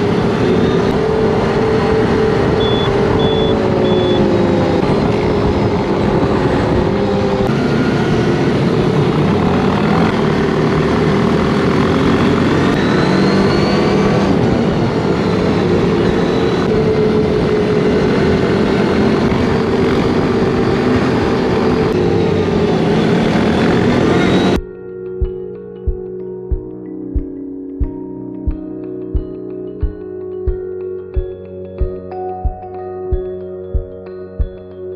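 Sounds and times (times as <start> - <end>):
quad bike engine cruising: 0.0 - 24.6
wind and road rush: 0.0 - 24.6.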